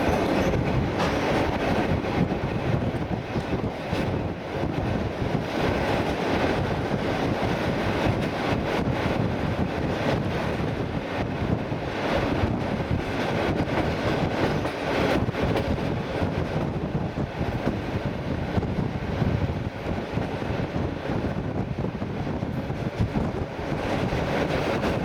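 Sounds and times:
train wheels rumbling on track: 0:00.0 - 0:25.0
wind buffeting microphone: 0:00.0 - 0:25.0.

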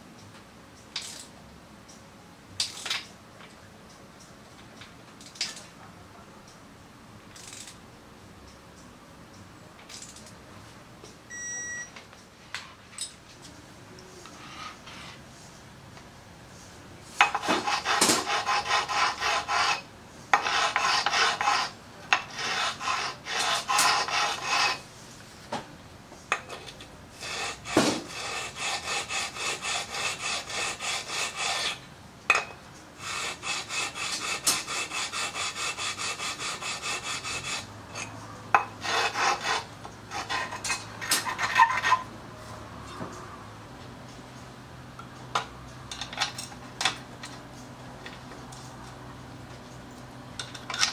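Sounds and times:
hand file rasping on steel: 0:17.2 - 0:24.8, 0:27.2 - 0:31.8, 0:33.0 - 0:38.1, 0:38.7 - 0:42.0.

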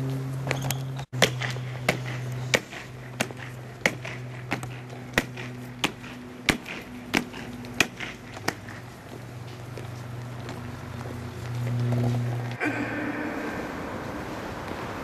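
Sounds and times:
faint footsteps: 0:00.0 - 0:15.0
steady low hum: 0:00.0 - 0:15.0
boots marching on stone: 0:00.4 - 0:12.6.

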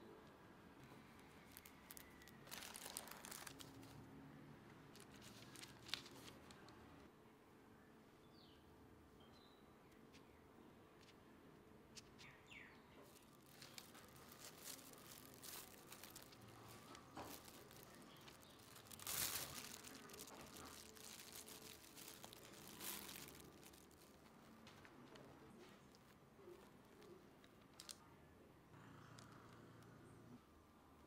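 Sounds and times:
plastic glove crinkling: 0:00.9 - 0:04.1, 0:04.8 - 0:06.8, 0:13.1 - 0:28.0.

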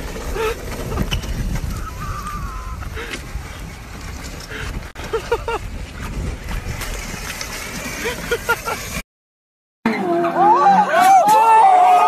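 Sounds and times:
low outdoor rumble: 0:00.0 - 0:09.0
people shouting: 0:09.9 - 0:12.0.

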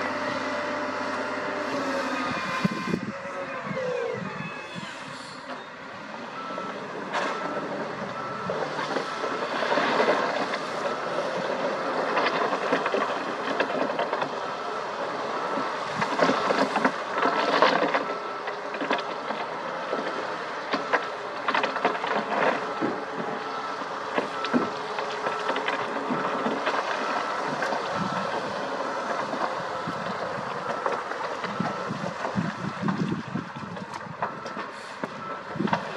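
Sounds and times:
diesel engines running: 0:00.0 - 0:35.9
reversing alarm beeping: 0:00.0 - 0:35.9
rock and soil sliding out: 0:07.1 - 0:33.2.

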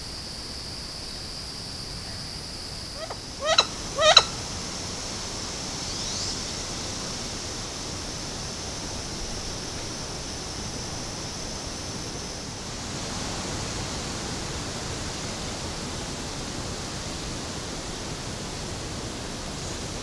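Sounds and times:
high insect drone: 0:00.0 - 0:20.0
duck calling: 0:03.0 - 0:04.6.

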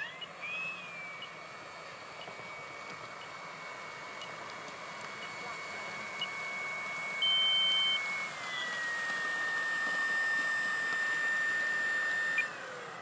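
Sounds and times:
model plane engine sound whine: 0:00.0 - 0:13.0
short high beep: 0:07.2 - 0:08.7.

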